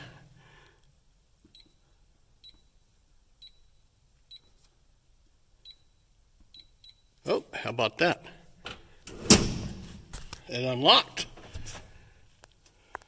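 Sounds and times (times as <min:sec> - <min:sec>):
faint high keypad beeps: 0:05.6 - 0:07.1.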